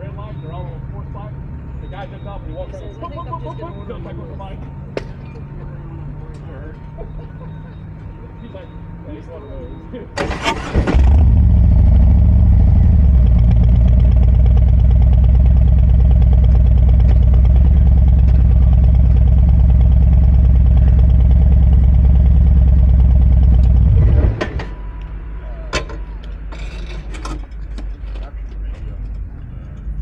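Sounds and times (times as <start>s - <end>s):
motorcycle engine running: 11.0s - 24.4s.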